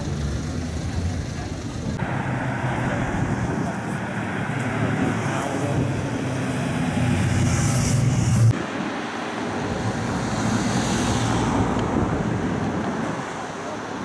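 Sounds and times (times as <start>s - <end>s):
motorcycle engines passing: 0.0s - 8.6s
city road traffic: 0.0s - 14.0s.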